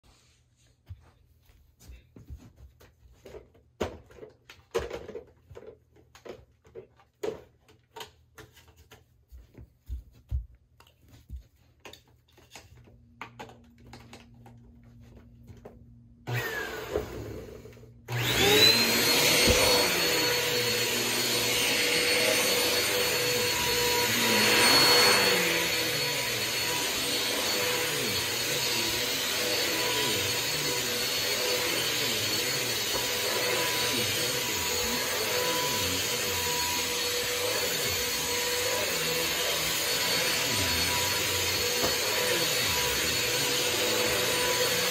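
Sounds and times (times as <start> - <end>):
vacuum cleaner running: 15.0 - 44.9.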